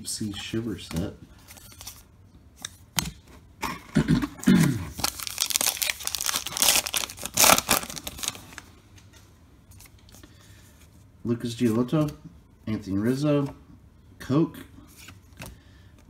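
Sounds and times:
wrapper crinkling and tearing: 4.9s - 8.6s
faint handling of cards: 4.9s - 13.8s, 14.6s - 16.0s.

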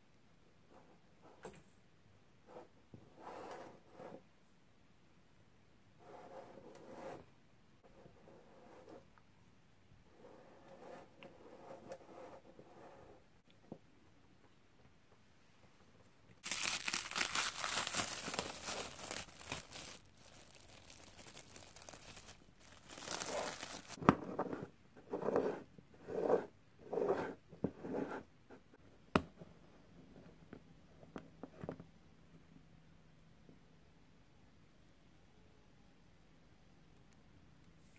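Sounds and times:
crinkling and rustling: 16.4s - 24.6s.

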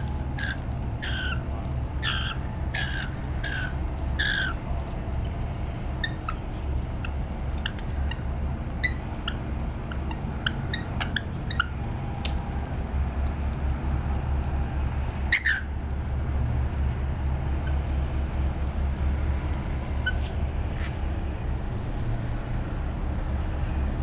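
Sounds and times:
lorikeet squawk: 0.0s - 1.4s, 2.0s - 4.6s, 6.0s - 6.5s, 7.6s - 11.8s, 15.3s - 15.7s
lorikeets chirping and clicking: 0.0s - 21.0s.

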